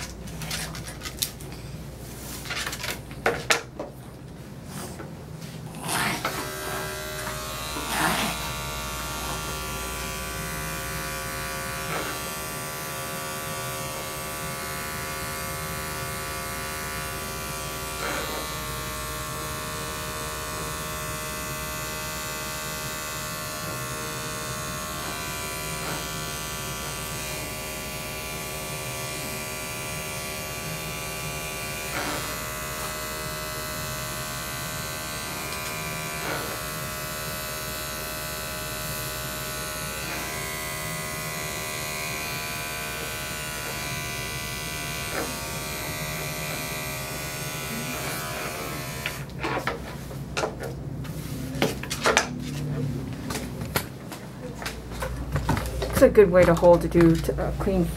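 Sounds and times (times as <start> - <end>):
electric clippers buzzing: 5.8 - 49.9.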